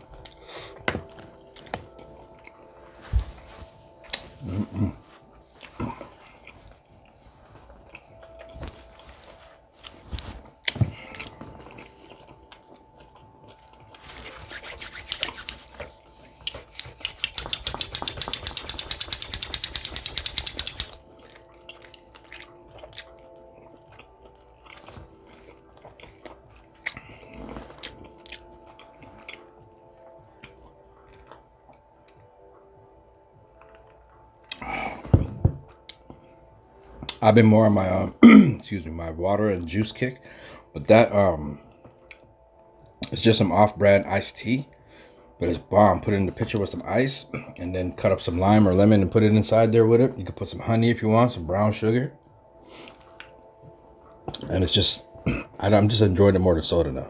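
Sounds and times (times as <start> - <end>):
close chewing with wet smacks: 0.1 - 2.8, 5.3 - 8.6, 10.6 - 14.4, 20.7 - 32.9, 33.5 - 34.7, 41.7 - 43.2
palms rubbing together: 14.0 - 21.0.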